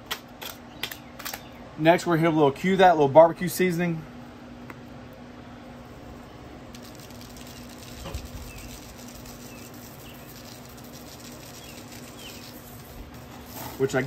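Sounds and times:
seasoning granules pattering: 6.7s - 14.0s
faint bird chirps: 7.4s - 12.8s.

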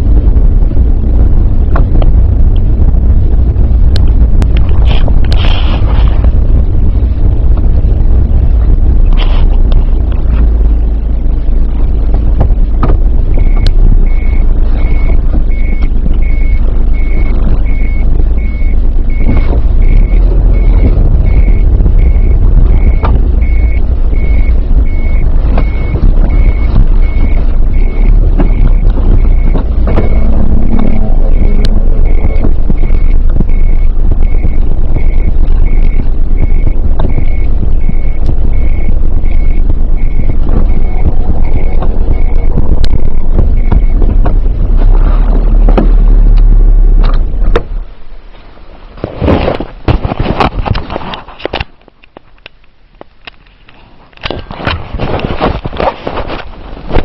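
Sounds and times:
car cabin rumble: 0.0s - 57.0s
reversing warning beeps: 13.3s - 44.2s.

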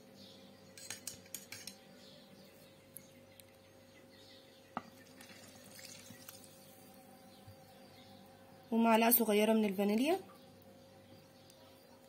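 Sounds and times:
liquid trickling onto dough: 5.0s - 6.8s.

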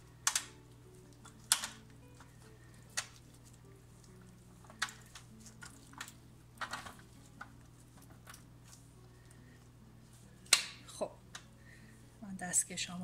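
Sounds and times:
wire rack clicking in metal pan: 0.2s - 0.5s, 1.2s - 1.8s.

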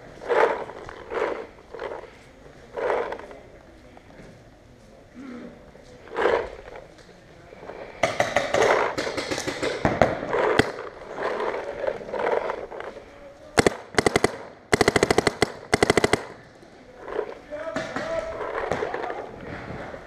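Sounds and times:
paintball markers firing: 8.0s - 12.6s, 13.5s - 16.6s.

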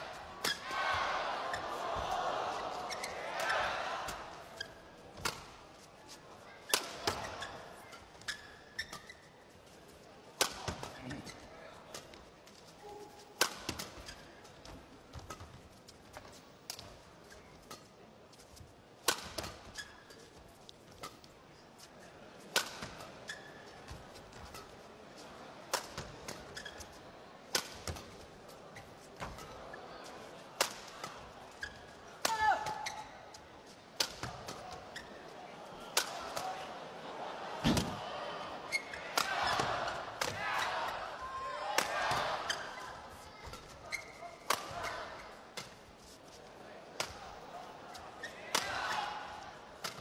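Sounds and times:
arena hall hum: 0.0s - 50.0s
badminton rackets hitting shuttlecock: 0.2s - 0.8s, 2.8s - 5.6s, 6.6s - 9.2s, 10.4s - 11.0s, 12.8s - 15.5s, 19.0s - 19.9s, 22.5s - 24.7s, 25.7s - 26.7s, 27.5s - 28.2s, 30.6s - 33.1s, 34.0s - 34.8s, 35.9s - 36.6s, 38.7s - 45.8s, 47.0s - 47.3s, 48.5s - 49.2s, 49.8s - 50.0s
shoes squeaking on court: 2.8s - 3.6s, 4.6s - 9.5s, 19.4s - 21.3s, 22.9s - 24.8s, 26.0s - 27.2s, 31.0s - 35.3s, 38.6s - 40.8s, 42.0s - 46.3s
shoe squeaks: 6.7s - 9.4s, 19.7s - 20.3s, 23.3s - 23.8s, 26.5s - 27.1s, 31.5s - 31.9s, 32.5s - 33.3s, 34.9s - 35.2s, 38.7s - 39.7s, 42.4s - 44.4s
rackets striking shuttlecock: 13.4s - 14.0s.

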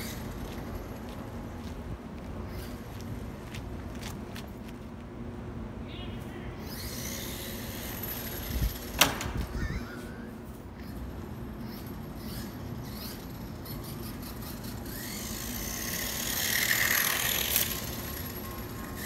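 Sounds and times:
toy truck motor and gears whining: 0.0s - 0.9s, 6.6s - 19.0s.

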